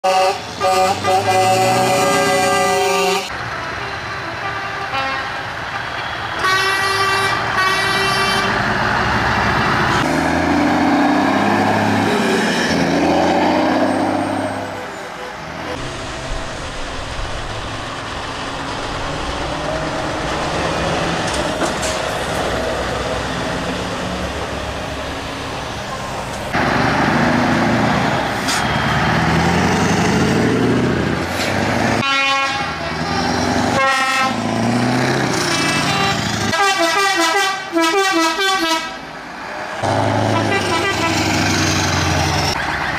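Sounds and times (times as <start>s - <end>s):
truck air horn blasts: 0.0s - 8.6s, 32.0s - 34.5s, 35.4s - 39.0s, 40.3s - 41.4s
road noise: 0.0s - 42.9s
truck diesel engine passing: 0.1s - 42.9s.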